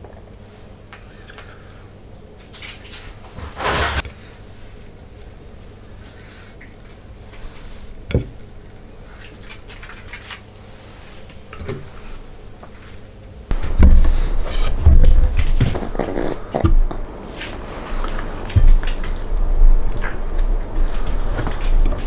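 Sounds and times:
rumbling and rustling: 2.9s - 4.3s, 13.5s - 22.0s.

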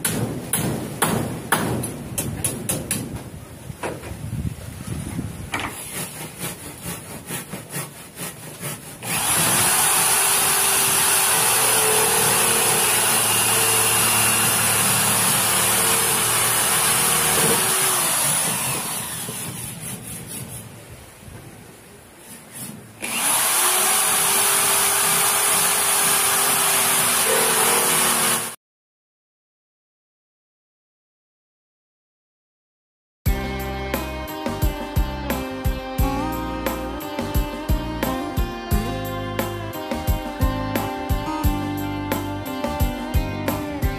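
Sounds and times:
scraping strokes on pipe: 5.6s - 9.8s, 19.1s - 20.8s, 22.2s - 22.9s
power tool motor cutting plastic: 8.6s - 20.0s, 23.0s - 28.6s.

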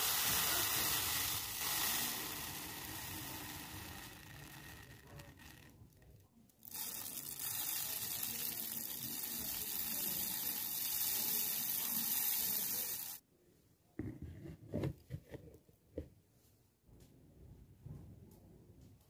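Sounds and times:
steady hissing noise: 0.0s - 5.7s, 6.6s - 13.2s.

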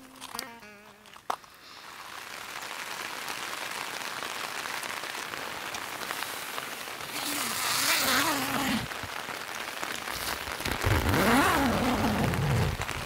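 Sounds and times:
guitar music: 0.0s - 1.3s
rain on a tent: 0.0s - 13.0s.

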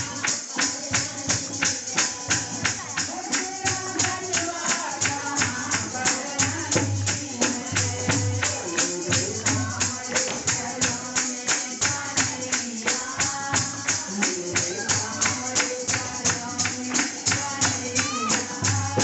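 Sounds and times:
hand clapping: 0.0s - 19.0s
jingling percussion: 0.0s - 19.0s
woman singing into microphone: 0.0s - 19.0s.

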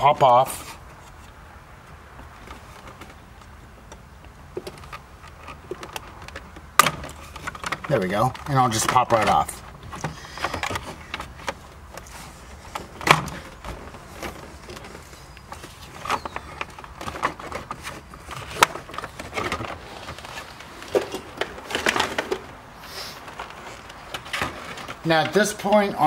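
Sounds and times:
plastic clips popping: 2.8s - 12.1s.

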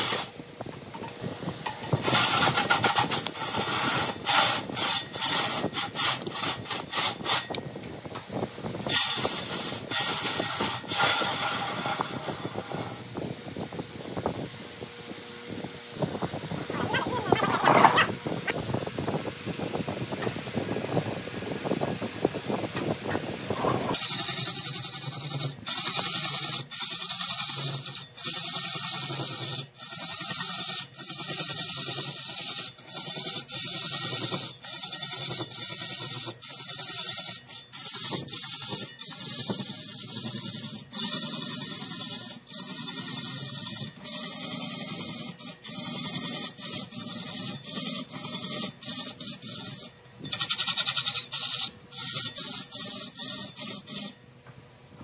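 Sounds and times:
turning tool scraping wood on lathe: 0.0s - 0.4s, 1.2s - 7.6s, 8.8s - 13.1s, 23.6s - 54.2s
faint machine hum: 0.0s - 55.0s.

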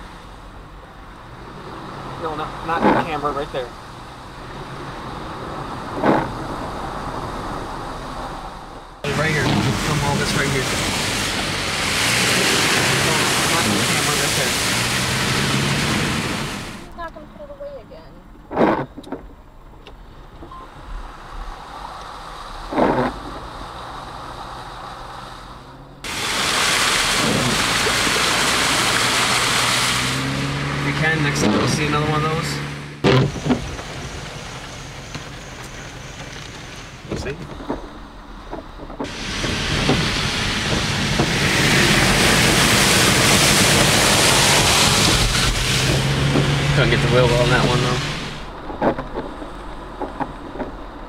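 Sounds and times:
rushing water: 0.0s - 17.0s, 20.4s - 51.0s
tyres through standing water: 0.0s - 17.0s, 20.4s - 51.0s
heavy rain and wind on a car: 0.0s - 51.0s
low engine hum: 0.0s - 51.0s
loud water whoosh: 4.4s - 16.9s, 21.0s - 34.9s, 39.1s - 48.5s.

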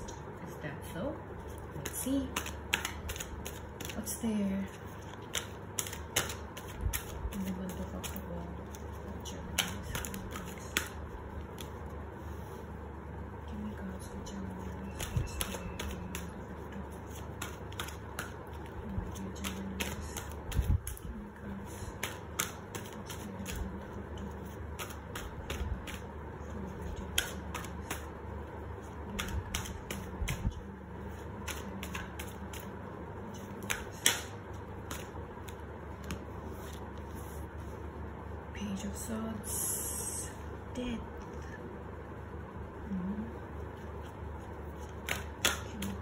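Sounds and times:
cards shuffling: 1.4s - 12.6s, 14.6s - 28.2s, 28.8s - 37.8s, 43.6s - 46.0s.

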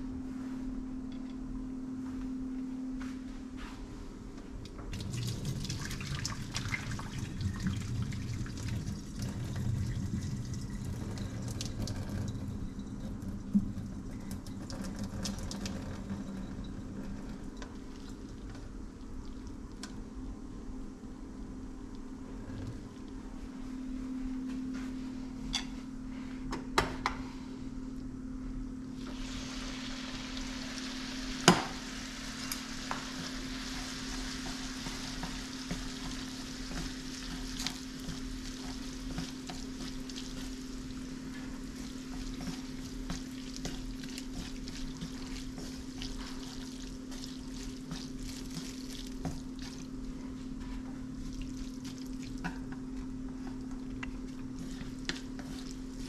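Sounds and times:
steady low hum: 0.0s - 56.0s
food sizzling in frying pan: 29.0s - 49.8s
stirring: 32.3s - 56.0s.

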